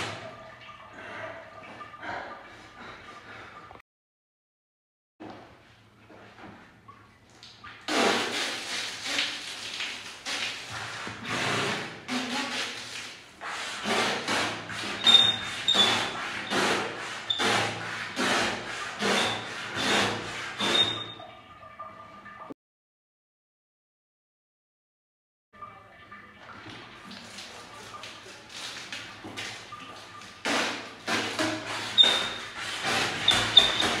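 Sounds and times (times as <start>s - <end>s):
water gun jet hissing and splashing: 7.8s - 21.2s, 27.1s - 34.0s.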